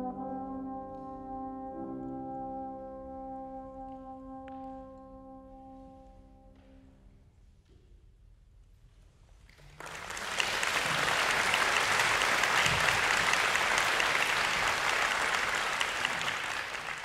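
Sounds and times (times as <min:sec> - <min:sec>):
audience applause: 0:09.7 - 0:17.0.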